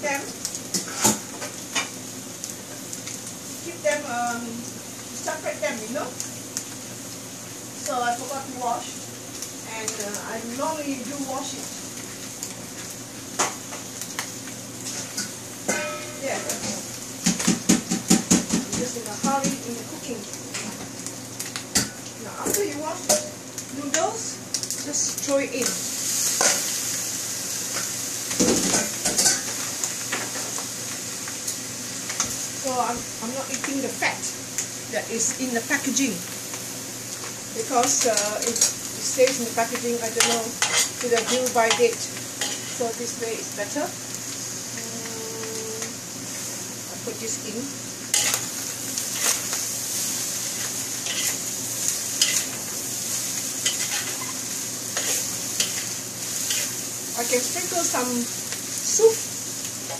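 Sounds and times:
noodles sizzling in a wok: 0.0s - 59.9s
spatula scraping and knocking wok: 14.8s - 19.6s, 27.7s - 30.6s, 37.7s - 42.9s, 48.1s - 57.9s
metal spatula scraping wok: 14.9s - 16.8s, 40.2s - 41.8s, 42.4s - 42.8s, 48.1s - 48.5s, 49.1s - 49.5s, 50.4s - 51.4s, 52.2s - 52.6s, 53.6s - 56.8s.

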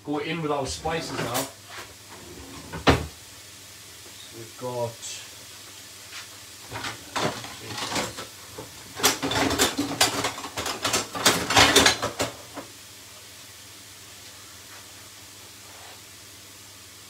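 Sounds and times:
mince sizzling in a pan: 0.0s - 11.2s, 11.8s - 17.0s.

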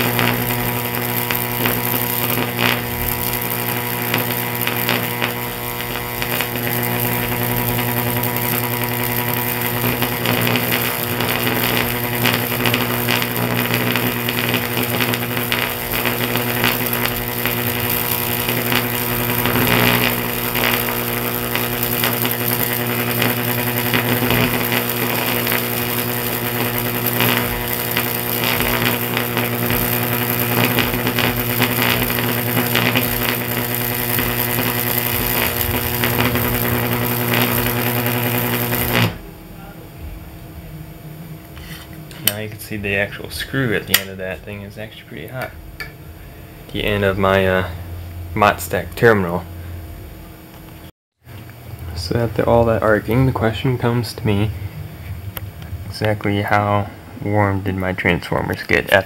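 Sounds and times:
electrical crackling: 0.0s - 40.4s, 41.3s - 45.8s, 46.6s - 59.0s
electrical arc buzzing: 0.0s - 59.0s.

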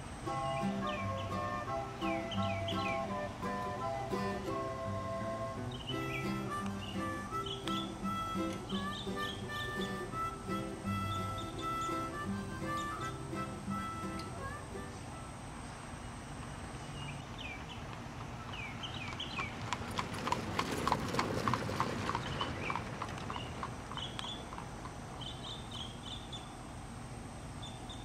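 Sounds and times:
birds chirping: 0.0s - 28.0s
horse hooves clip-clopping: 5.4s - 12.0s, 17.2s - 26.1s.

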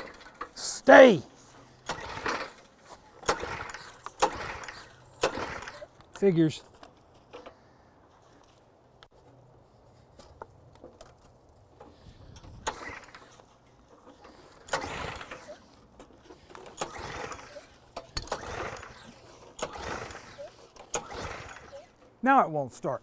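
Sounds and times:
recoil starter cranking rasp: 1.8s - 6.0s, 12.4s - 22.1s.

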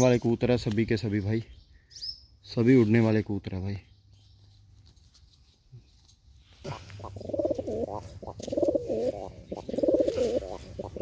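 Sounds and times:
pigeons cooing: 6.6s - 11.0s.

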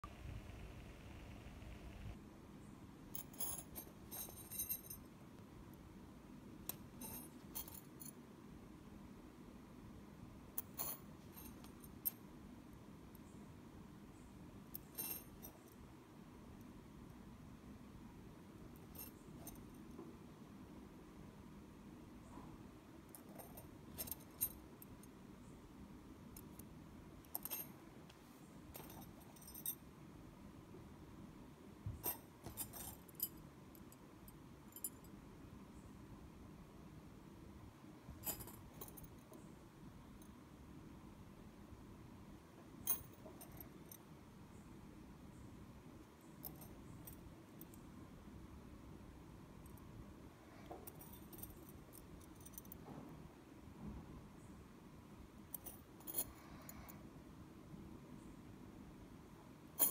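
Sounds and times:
metal bangles clinking: 3.1s - 5.1s, 6.6s - 8.1s, 10.6s - 12.2s, 14.7s - 15.8s, 18.8s - 19.8s, 27.3s - 27.8s, 28.7s - 29.8s, 32.0s - 33.9s, 38.2s - 39.4s, 42.9s - 44.0s, 46.3s - 47.8s, 55.5s - 56.5s.

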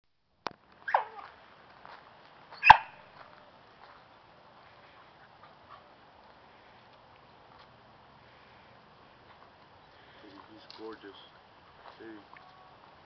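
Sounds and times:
dog yelping: 0.9s - 1.3s, 2.6s - 3.0s
dog barking: 2.6s - 2.9s.

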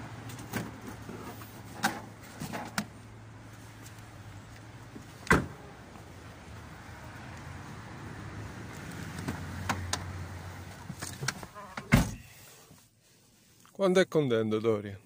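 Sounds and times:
car door slamming shut: 5.2s - 5.6s, 11.7s - 12.2s.

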